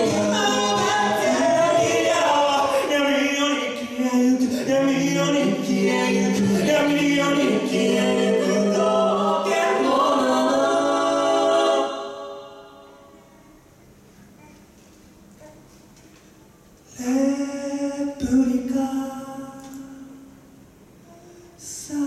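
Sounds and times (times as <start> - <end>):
a cappella group singing: 0.0 - 13.1, 16.9 - 20.2.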